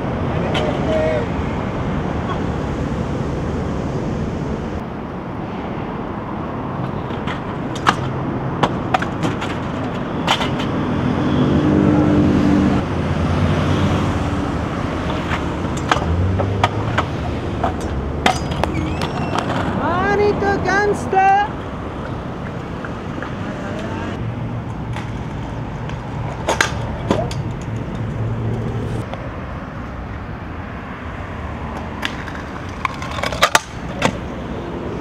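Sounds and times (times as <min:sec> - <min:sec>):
scooter wheels rolling on pavement: 0:06.7 - 0:12.2, 0:12.8 - 0:30.1, 0:31.0 - 0:35.0
scooter clacks: 0:07.1 - 0:10.8, 0:15.0 - 0:20.0, 0:24.7 - 0:28.7, 0:31.7 - 0:34.3
motor vehicle passing: 0:10.6 - 0:35.0.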